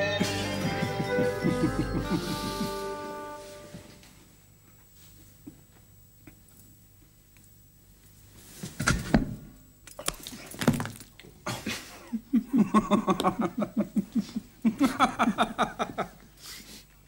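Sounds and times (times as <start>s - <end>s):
man laughing heartily: 0.6s - 3.4s, 11.5s - 16.3s.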